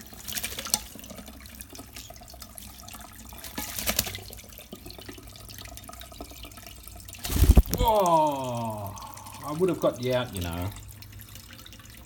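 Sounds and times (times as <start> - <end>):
bird splashing in water: 0.0 - 2.1, 3.3 - 4.4, 7.2 - 7.8.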